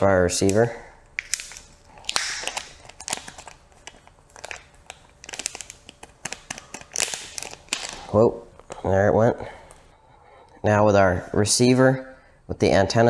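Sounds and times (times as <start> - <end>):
foil bag crinkling: 1.2 - 8.2.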